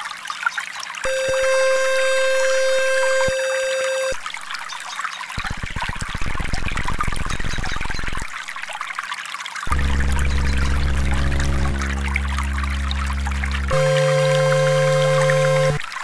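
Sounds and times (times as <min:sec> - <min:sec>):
trickling water: 0:00.0 - 0:16.0
low buzzing tone: 0:01.1 - 0:04.2, 0:09.7 - 0:16.0
steady synthesized tone: 0:01.1 - 0:04.2, 0:09.7 - 0:15.9.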